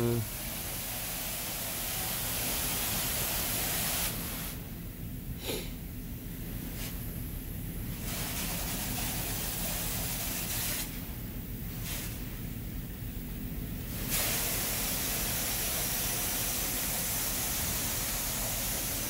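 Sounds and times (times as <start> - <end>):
water spray hitting van: 0.0 - 4.6, 7.9 - 11.1, 11.7 - 12.4, 13.9 - 19.0.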